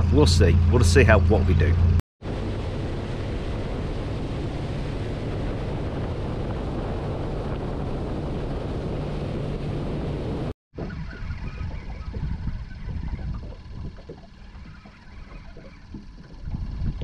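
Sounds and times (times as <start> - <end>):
outboard motor running: 0.0 - 17.0
water along boat hull: 0.0 - 17.0
wind on microphone: 1.2 - 17.0.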